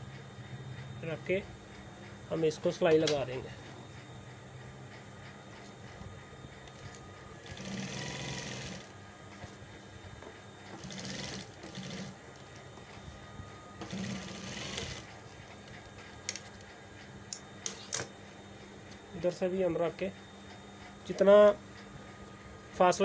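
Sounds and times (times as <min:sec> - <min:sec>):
sewing machine stitching: 0:07.4 - 0:08.9, 0:10.8 - 0:12.2, 0:13.9 - 0:15.1.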